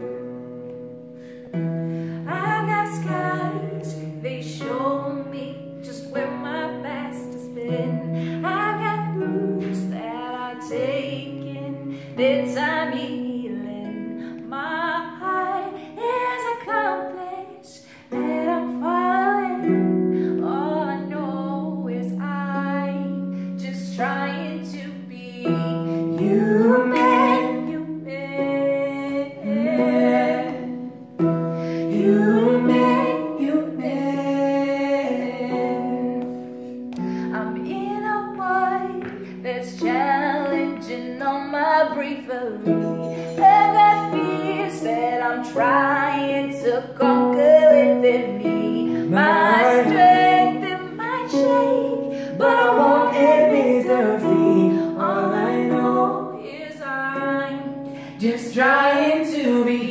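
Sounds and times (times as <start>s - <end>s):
woman singing: 2.1s - 59.9s.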